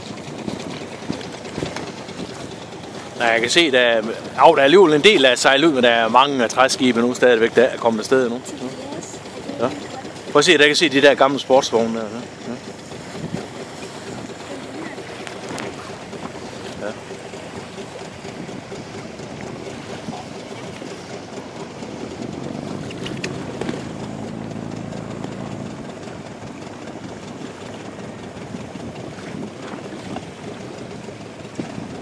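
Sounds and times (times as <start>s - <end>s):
motorboat engine humming: 0.0s - 32.0s.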